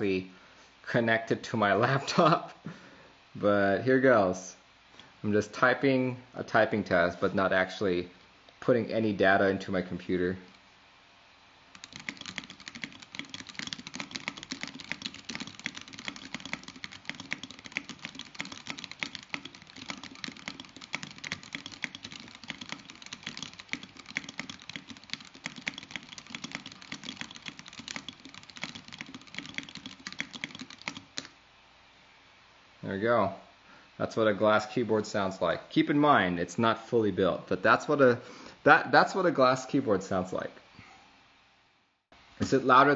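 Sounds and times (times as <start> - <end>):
fast typing on mechanical keyboard: 11.7 - 31.3.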